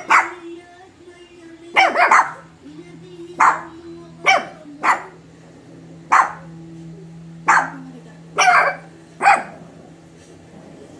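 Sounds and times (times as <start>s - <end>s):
small dog barking: 0.0s - 0.4s, 1.7s - 2.5s, 3.4s - 5.2s, 6.1s - 6.5s, 7.4s - 7.8s, 8.4s - 9.6s.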